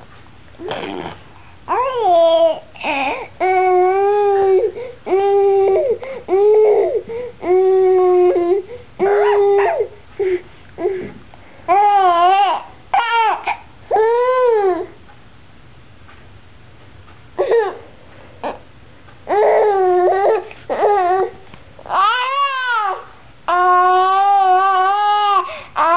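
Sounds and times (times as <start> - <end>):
baby making high aah calls: 9.0 - 9.8.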